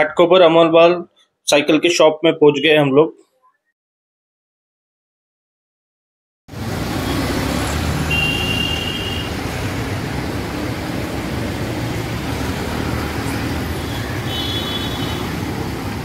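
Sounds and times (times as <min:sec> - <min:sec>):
traffic rumble: 0:06.5 - 0:16.0
vehicle horn: 0:08.0 - 0:09.4, 0:13.7 - 0:15.4.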